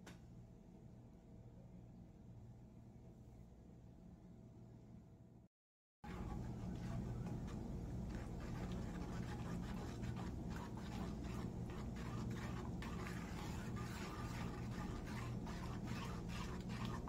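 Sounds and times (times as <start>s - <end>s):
steady low hum: 0.0s - 17.0s
spoon scraping metal bowl: 6.1s - 17.0s.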